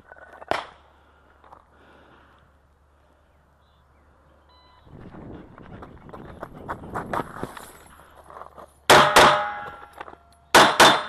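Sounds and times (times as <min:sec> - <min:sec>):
short electronic beep: 0:04.4 - 0:04.9
footsteps crunching on mulch: 0:05.6 - 0:08.9.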